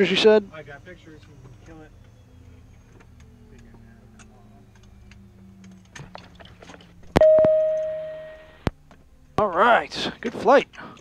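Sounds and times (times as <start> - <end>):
low equipment hum winding down: 1.2 - 6.1
chime-like tone: 7.2 - 8.6.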